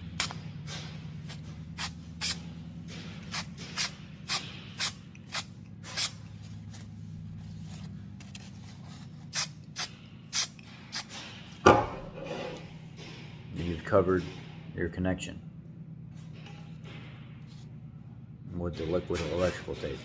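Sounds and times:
aerosol can spraying: 1.3 - 2.4, 9.3 - 11.1
loud thump: 11.6 - 12.2.

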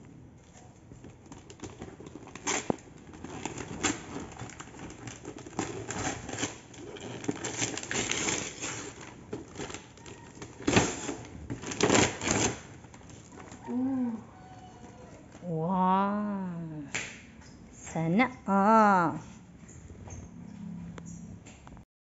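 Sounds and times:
paper tearing and rustling: 1.2 - 13.6.

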